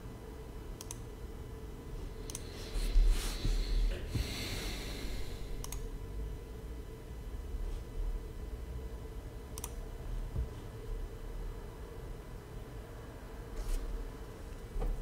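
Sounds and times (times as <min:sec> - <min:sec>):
person breathing heavily: 0:02.4 - 0:05.6
sharp clicks: 0:05.6 - 0:05.9, 0:09.6 - 0:09.8.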